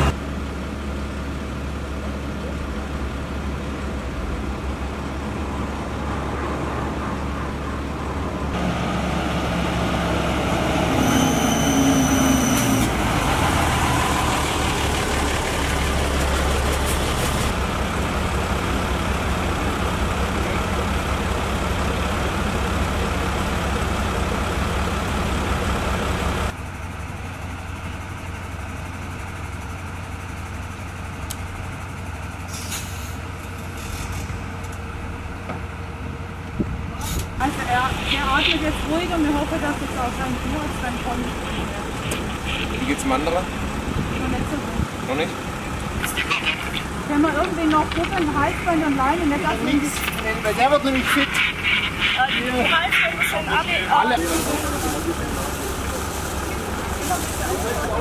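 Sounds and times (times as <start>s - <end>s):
vehicle engines idling: 0.0s - 58.0s
brief high-pitched tone: 11.0s - 12.9s.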